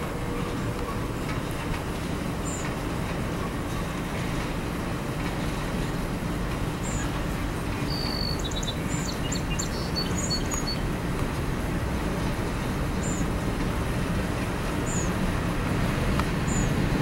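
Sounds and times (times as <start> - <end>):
train wheels rumbling on rails: 0.0 - 17.0
birds chirping: 6.8 - 10.9, 12.9 - 13.3, 14.8 - 15.2, 16.4 - 16.9.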